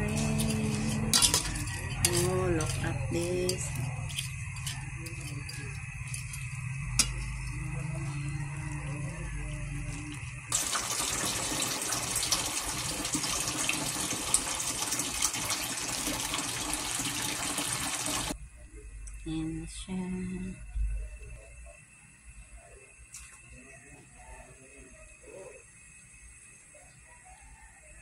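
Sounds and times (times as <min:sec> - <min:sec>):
low hum: 0:00.0 - 0:10.6
shrimp sizzling in a hot pan: 0:10.5 - 0:18.4.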